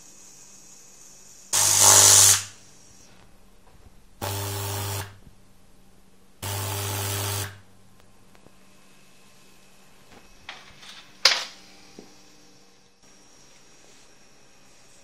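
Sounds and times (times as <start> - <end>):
loud electrical buzz with hiss: 0.0 - 3.2, 4.2 - 5.3, 6.4 - 7.7.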